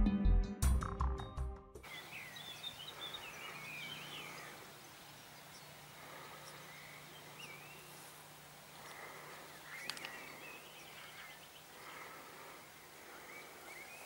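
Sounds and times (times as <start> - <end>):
songbirds singing: 1.8 - 14.0.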